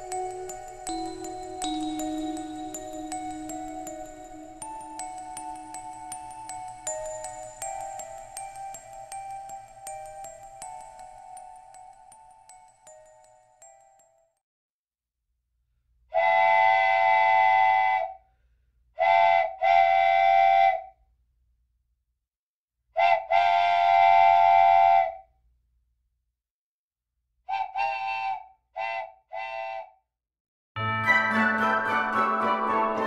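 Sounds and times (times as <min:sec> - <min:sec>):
wooden train whistle toots: 0:16.2 - 0:18.2, 0:19.0 - 0:20.9, 0:23.0 - 0:25.2, 0:27.5 - 0:30.0.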